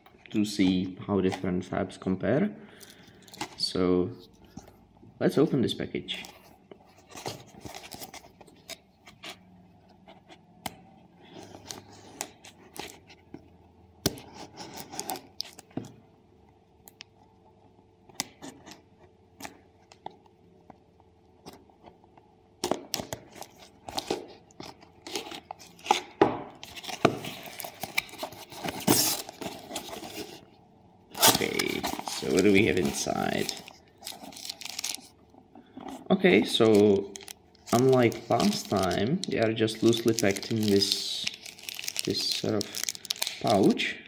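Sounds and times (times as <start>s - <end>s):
tearing and crinkling of wrap: 31.1s - 35.2s, 36.4s - 43.8s.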